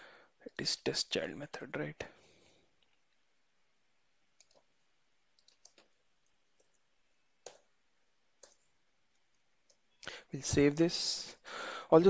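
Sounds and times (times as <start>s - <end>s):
mouse and keyboard clicks: 4.4s - 4.7s.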